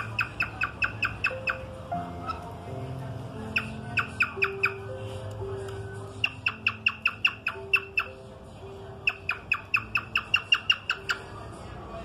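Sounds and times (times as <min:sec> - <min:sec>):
cockatiel chirping: 0:00.0 - 0:02.4, 0:03.5 - 0:04.8, 0:06.2 - 0:08.2, 0:09.0 - 0:11.3.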